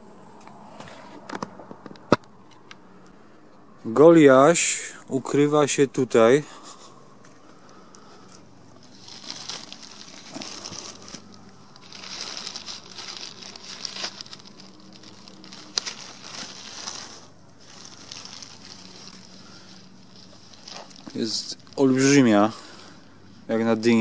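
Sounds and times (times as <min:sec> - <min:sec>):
plastic bag crinkling: 0:07.6 - 0:23.0.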